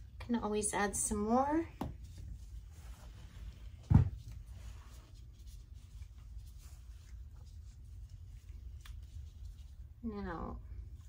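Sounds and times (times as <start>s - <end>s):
low steady hum: 0.0s - 11.0s
scratchy rustling: 2.0s - 10.1s.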